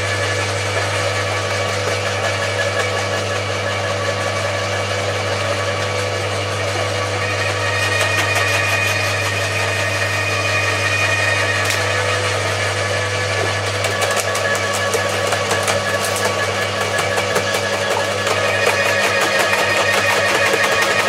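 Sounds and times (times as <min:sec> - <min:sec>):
shredder motors humming: 0:00.0 - 0:21.0
branches crackling and snapping: 0:11.6 - 0:11.9.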